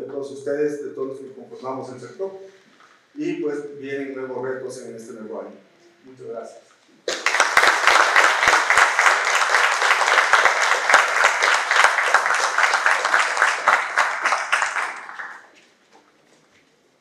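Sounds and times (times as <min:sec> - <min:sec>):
small audience applauding: 0:07.0 - 0:15.7.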